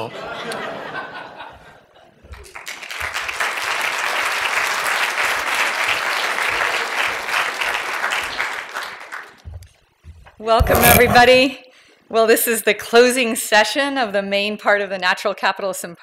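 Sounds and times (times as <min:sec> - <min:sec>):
audience applauding: 0:02.4 - 0:09.4.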